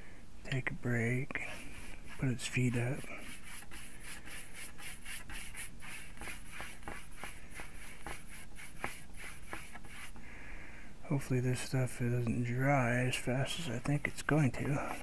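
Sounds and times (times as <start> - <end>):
paintbrush scraping strokes: 1.4 - 10.2, 12.4 - 15.0.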